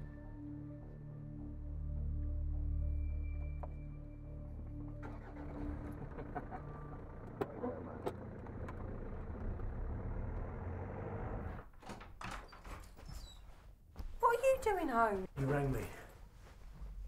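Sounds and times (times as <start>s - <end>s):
car engine running: 4.8s - 11.6s.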